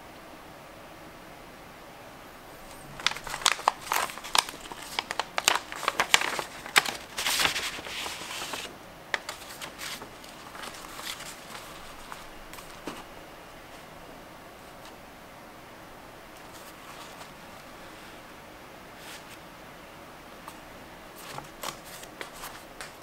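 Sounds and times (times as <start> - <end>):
paper envelope crinkling: 2.6 - 13.1, 16.4 - 17.8, 20.5 - 23.0
light paper rustles and taps: 2.7 - 13.1, 21.2 - 23.0.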